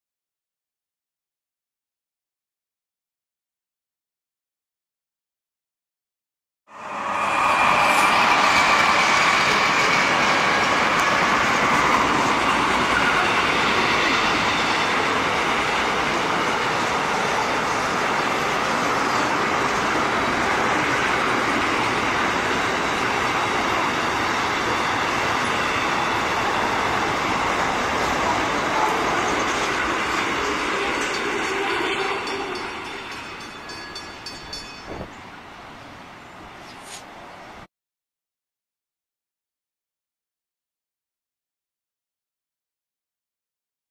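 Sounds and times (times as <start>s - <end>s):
train wheels rushing on rail: 6.7s - 37.6s.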